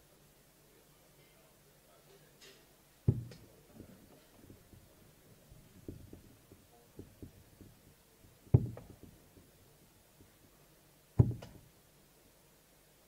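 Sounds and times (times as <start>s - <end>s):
faint knocks: 2.4s - 10.6s, 11.2s - 11.7s
darts thudding into dartboard: 3.1s - 9.6s, 11.2s - 11.7s.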